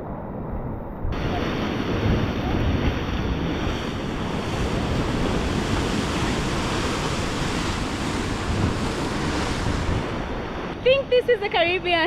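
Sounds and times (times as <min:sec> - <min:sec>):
wind rumbling on microphone: 0:00.0 - 0:12.0
sea surf breaking on rocks: 0:01.2 - 0:12.0.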